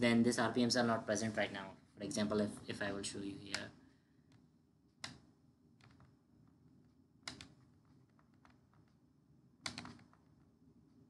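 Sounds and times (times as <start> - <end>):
computer mouse clicks: 4.3 - 6.2, 7.2 - 9.0, 9.6 - 10.5.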